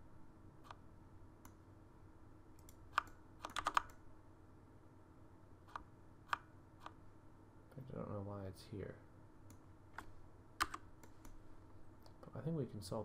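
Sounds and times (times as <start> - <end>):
faint steady hum: 0.0 - 13.0
keyboard and mouse clicks: 2.6 - 4.0, 5.7 - 7.0, 9.5 - 11.4.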